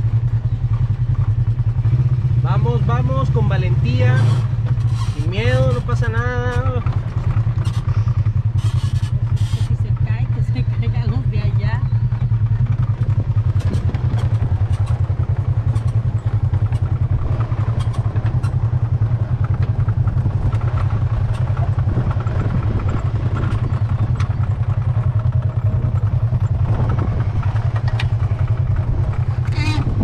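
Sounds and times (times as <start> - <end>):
off-road vehicle engine running: 0.0 - 30.0
light clatter and knocks: 12.2 - 29.9.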